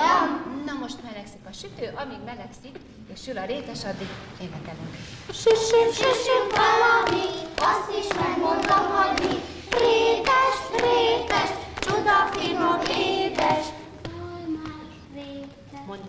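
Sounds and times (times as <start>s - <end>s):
children singing in unison: 0.0s - 0.5s, 5.4s - 15.5s
hand claps: 5.4s - 15.5s.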